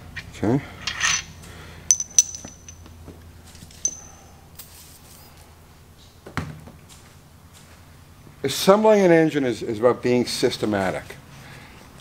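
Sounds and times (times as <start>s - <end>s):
low steady hum: 0.0s - 12.0s
metal tools clinking: 0.8s - 2.9s, 3.7s - 4.3s.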